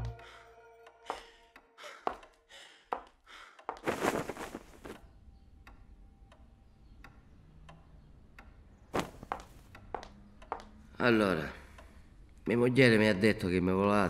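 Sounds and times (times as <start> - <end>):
soft evenly spaced ticks: 4.8 - 14.0.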